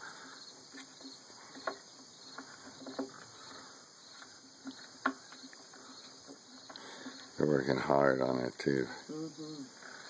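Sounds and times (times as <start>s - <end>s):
claws tapping on wooden deck: 0.7s - 3.4s, 4.1s - 7.2s.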